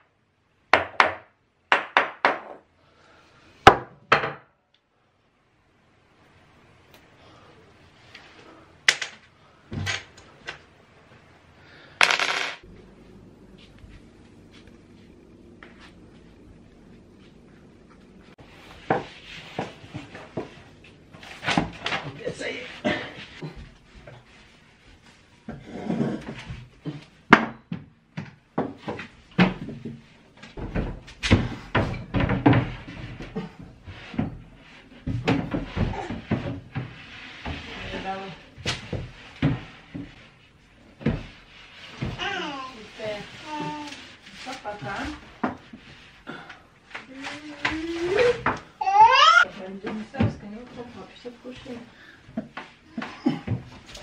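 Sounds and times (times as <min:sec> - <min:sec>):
clicks and knocks of cabinets: 0:25.5 - 0:37.7.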